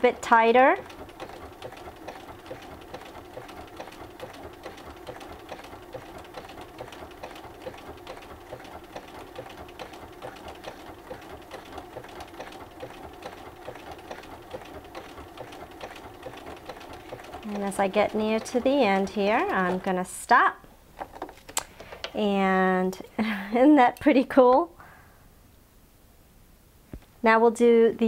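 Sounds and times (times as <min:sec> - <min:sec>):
sewing machine running: 0:00.0 - 0:20.1
needle clicking: 0:00.8 - 0:20.0.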